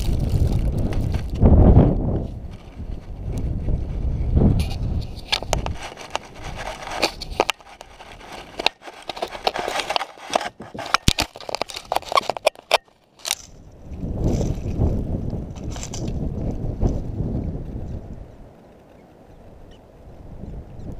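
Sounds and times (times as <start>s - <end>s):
fur rubbing on camera: 4.6s - 12.5s
claws scratching camera housing: 4.6s - 13.6s.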